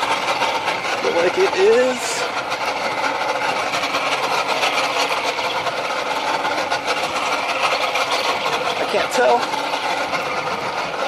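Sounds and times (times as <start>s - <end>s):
boat engine running: 0.0s - 11.0s.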